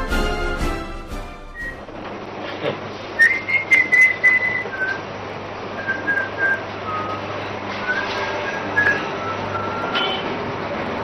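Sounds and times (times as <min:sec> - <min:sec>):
person whistling a tune: 0:01.5 - 0:01.8, 0:03.2 - 0:05.0, 0:05.8 - 0:10.1.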